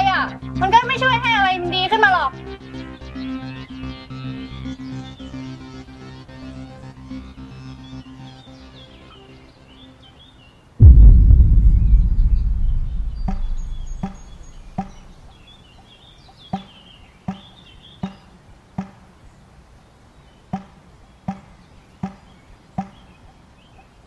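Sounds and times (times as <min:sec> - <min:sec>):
deep dramatic boom: 0:10.8 - 0:15.2
ticking beat: 0:12.7 - 0:15.0
birds chirping: 0:12.8 - 0:18.2.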